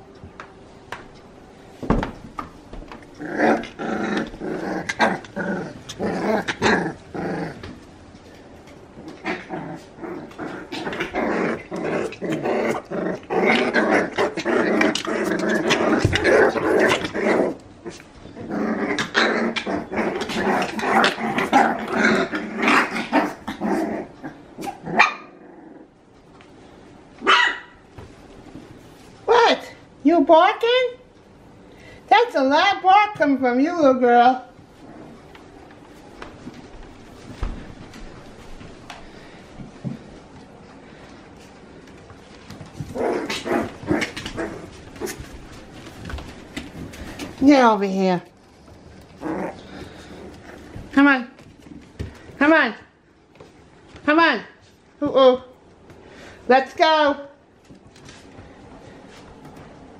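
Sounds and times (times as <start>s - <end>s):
puppies growling: 2.9s - 26.2s, 34.5s - 52.4s.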